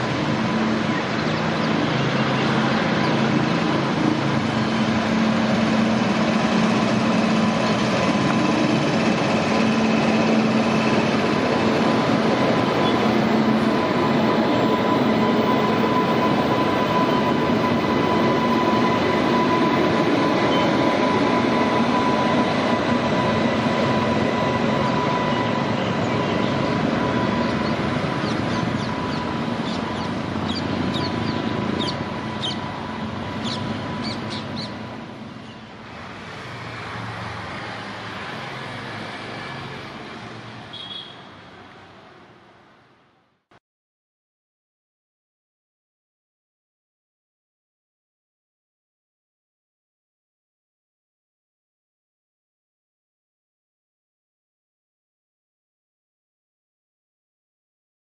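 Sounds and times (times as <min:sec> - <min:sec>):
constant whine: 0:00.0 - 0:40.3
locomotive wheels rumbling: 0:00.0 - 0:40.6.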